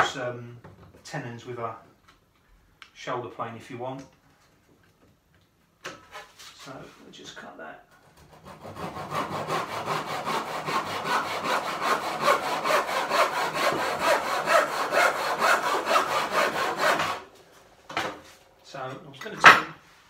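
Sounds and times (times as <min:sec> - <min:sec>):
hand saw cutting timber: 0:08.1 - 0:17.3.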